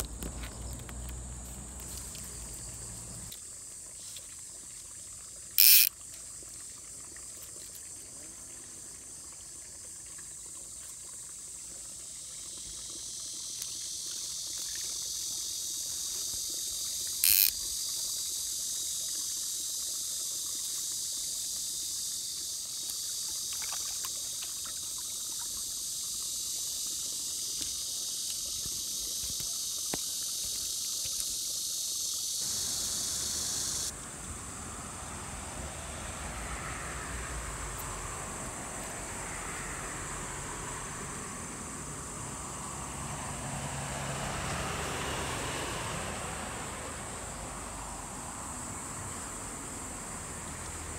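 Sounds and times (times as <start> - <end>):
high-pitched insect chorus: 0.0 - 50.9
loud bursts of hiss: 31.4 - 33.9.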